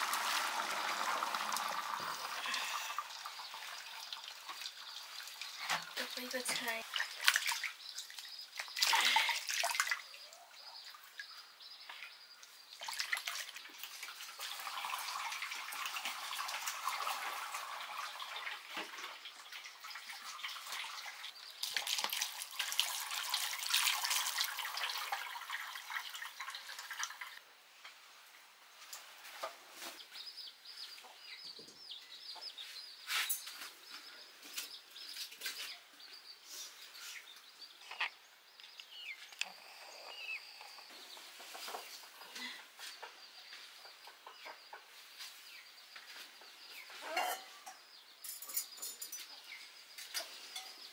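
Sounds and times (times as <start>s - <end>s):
water splashing and trickling: 0.0s - 27.8s
birds chirping: 0.8s - 14.0s, 28.8s - 50.9s.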